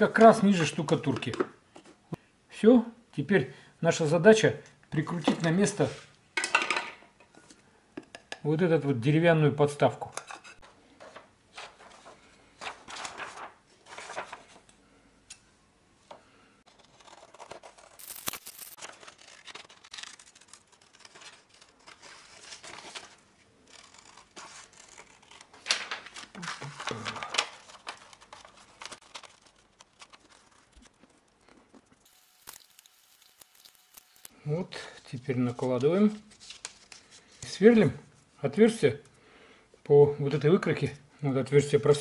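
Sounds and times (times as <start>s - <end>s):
paper rustling and crinkling: 10.9s - 14.7s, 16.7s - 34.3s, 35.6s - 37.4s
scissors snipping paper: 16.7s - 25.9s, 26.8s - 34.3s.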